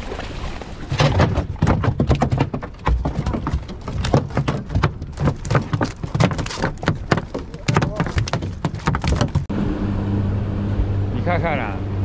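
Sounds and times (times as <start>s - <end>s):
fish thrashing against boat: 0.0s - 9.5s.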